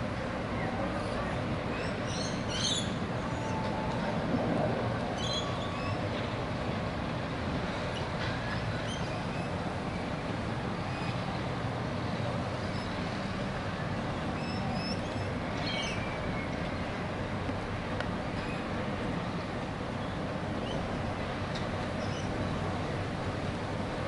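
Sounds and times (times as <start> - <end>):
distant city rumble: 0.0 - 24.0.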